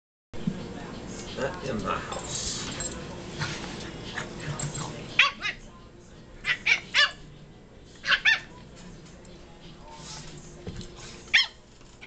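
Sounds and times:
puppy yipping: 0:06.4 - 0:07.2, 0:08.0 - 0:08.5, 0:11.3 - 0:11.6.

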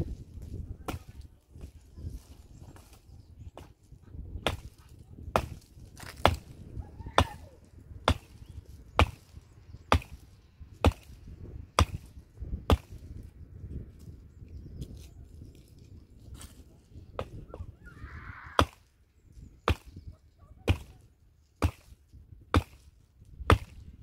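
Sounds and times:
wood being chopped: 0:00.8 - 0:01.7, 0:04.4 - 0:13.2, 0:16.4 - 0:17.6, 0:18.6 - 0:18.9, 0:19.6 - 0:20.0, 0:20.6 - 0:21.0, 0:21.6 - 0:23.9.

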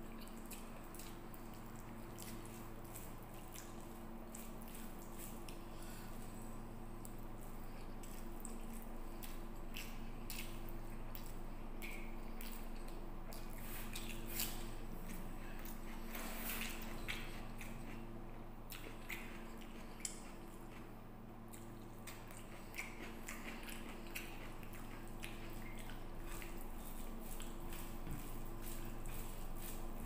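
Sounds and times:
chewing smacks and clicks: 0:00.0 - 0:30.0
rice squishing by hand: 0:21.8 - 0:30.0.

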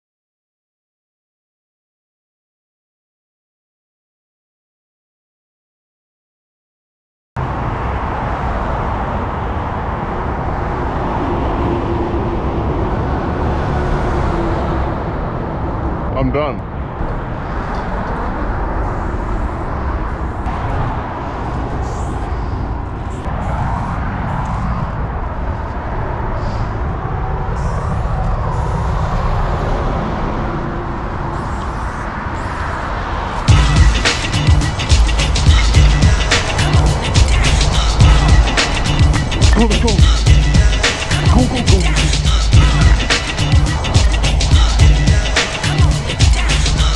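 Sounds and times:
road traffic rumble: 0:07.4 - 0:46.9.

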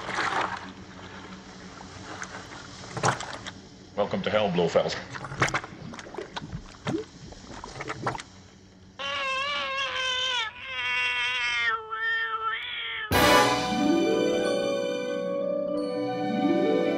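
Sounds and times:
cat yowling: 0:09.0 - 0:13.2
bright chiming music hit: 0:13.1 - 0:16.9.

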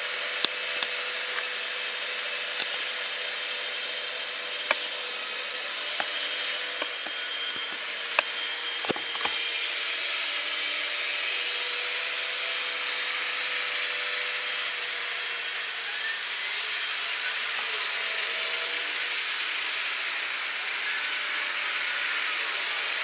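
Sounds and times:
mechanical whine: 0:00.0 - 0:23.0.

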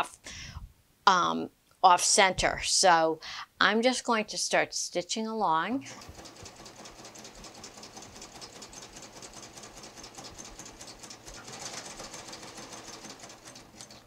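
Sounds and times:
overlock sewing machine stitching: 0:05.8 - 0:14.0.

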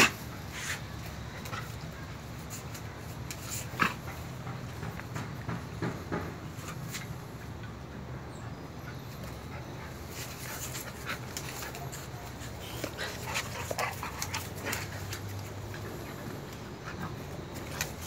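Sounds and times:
dogs scuffling and mouthing: 0:00.0 - 0:07.4, 0:08.9 - 0:18.0
dogs panting: 0:00.0 - 0:18.0.

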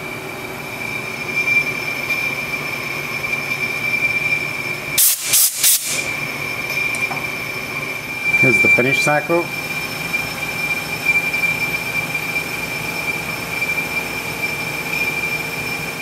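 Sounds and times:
lathe high-pitched whine: 0:00.0 - 0:16.0
short loud hissing bursts: 0:05.0 - 0:06.1.

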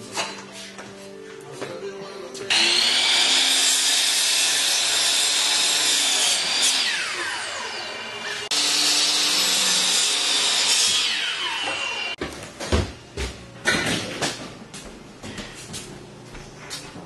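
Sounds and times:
miter saw cutting wood: 0:02.5 - 0:12.2.

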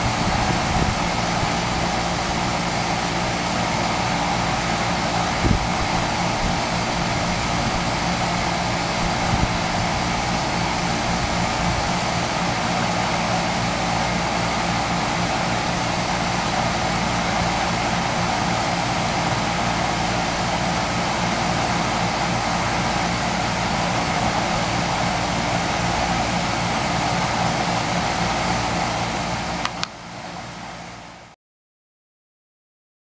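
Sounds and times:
low even hum: 0:00.0 - 0:28.4
sharp click: 0:29.6 - 0:30.0.

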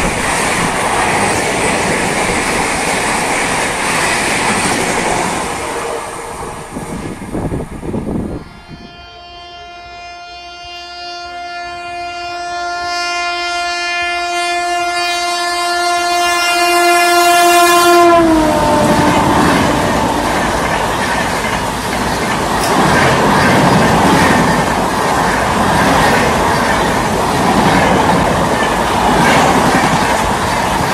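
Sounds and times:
passing train noise: 0:00.0 - 0:30.9
train horn blast: 0:08.0 - 0:20.7
train wheels clattering: 0:18.6 - 0:30.9.

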